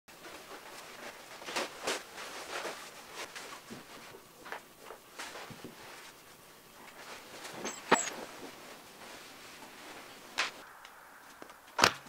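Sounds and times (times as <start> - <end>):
clothing rustling: 0.1 - 10.6.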